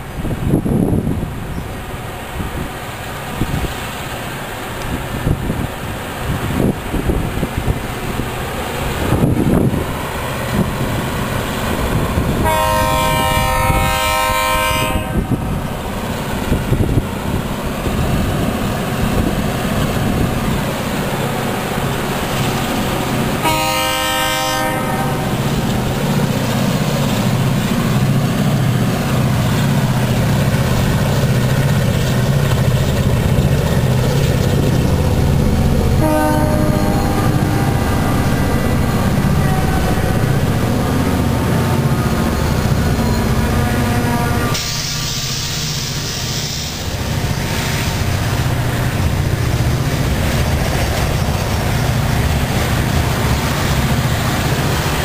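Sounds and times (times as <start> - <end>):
locomotive air horn: 12.4 - 15.4, 23.4 - 25.3, 36.0 - 41.0, 43.0 - 46.8
diesel engine rumble: 25.0 - 55.0.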